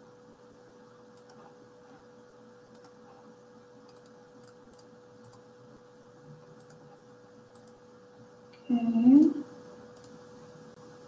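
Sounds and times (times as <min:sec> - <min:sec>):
faint steady hum: 0:00.0 - 0:11.0
computer clicks: 0:02.6 - 0:03.0, 0:03.8 - 0:05.5, 0:06.5 - 0:06.9, 0:07.5 - 0:07.8, 0:09.9 - 0:10.2.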